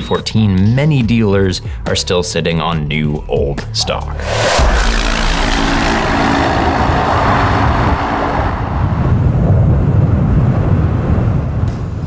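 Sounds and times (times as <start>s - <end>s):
vehicle passing by: 4.2s - 10.0s.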